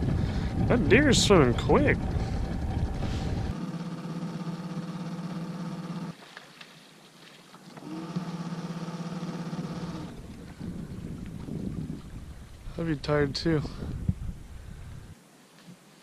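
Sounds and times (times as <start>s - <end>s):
boat motor humming: 0.0s - 6.2s, 7.6s - 13.0s.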